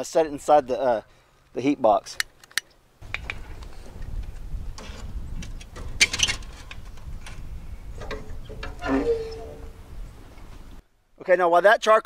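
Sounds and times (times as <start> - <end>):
metal clanks and scrapes: 3.2 - 9.8
steady low rumble: 9.4 - 10.8.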